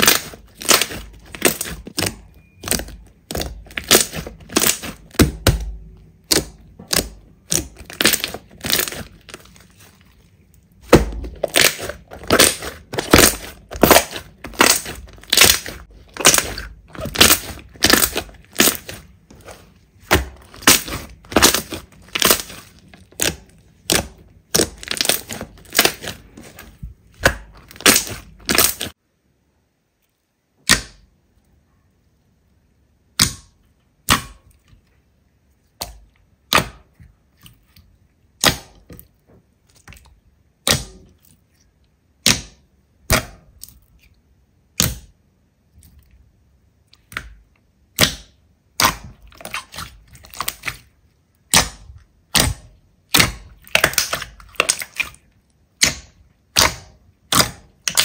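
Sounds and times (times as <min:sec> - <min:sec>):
crunchy slime crackling pops: 0:00.0 - 0:09.9, 0:10.8 - 0:29.0, 0:47.0 - 0:58.0.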